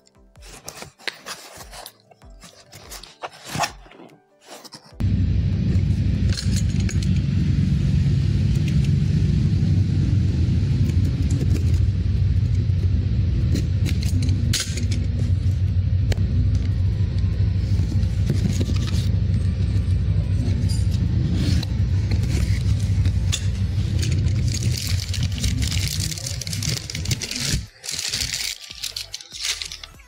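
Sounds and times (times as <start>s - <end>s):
loud low rumble: 5.0s - 28.4s.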